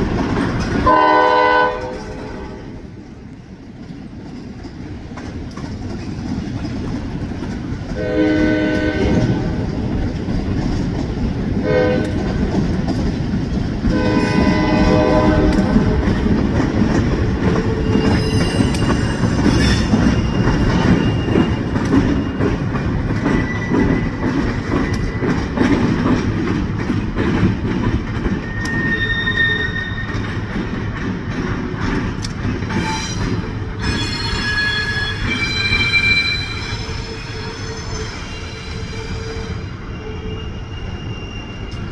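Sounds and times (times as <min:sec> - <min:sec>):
diesel locomotive engine rumble: 0:00.0 - 0:41.9
train wheels clacking: 0:00.0 - 0:41.9
train horn blasts: 0:00.8 - 0:02.8, 0:08.0 - 0:09.6, 0:11.6 - 0:12.3, 0:13.9 - 0:16.1
wheels squealing: 0:13.9 - 0:26.4, 0:28.0 - 0:30.9, 0:32.7 - 0:41.9.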